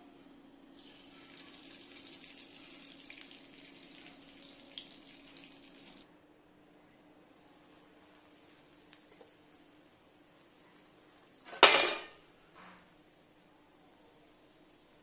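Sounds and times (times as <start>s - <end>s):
fat sizzling in a pan: 0.7s - 6.0s, 7.2s - 12.1s.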